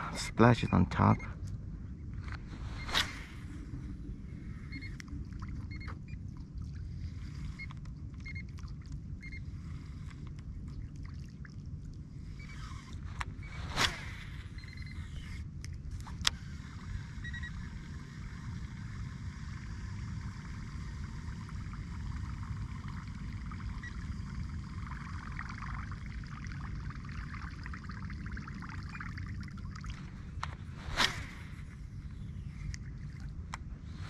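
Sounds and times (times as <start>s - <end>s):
low rumble: 0.0s - 34.0s
water trickling: 21.3s - 30.2s.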